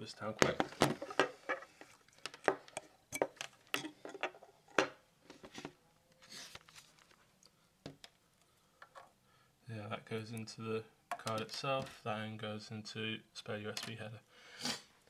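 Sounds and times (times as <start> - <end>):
soft rustle: 5.2 - 7.6.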